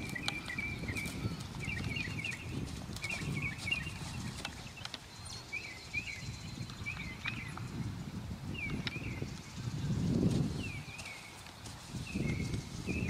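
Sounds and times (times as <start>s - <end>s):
muffled hoofbeats on sand: 0.0s - 4.8s, 9.6s - 13.0s
songbird chirping: 0.0s - 13.0s.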